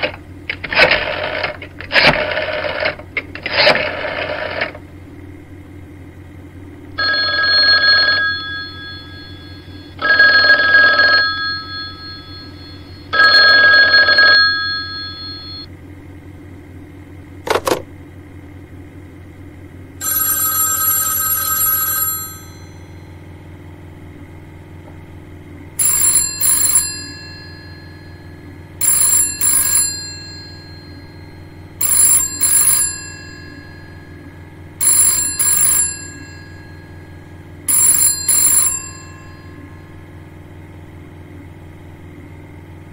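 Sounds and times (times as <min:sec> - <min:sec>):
old telephone bell ringing: 0:07.0 - 0:15.7, 0:20.0 - 0:23.3, 0:25.8 - 0:40.0.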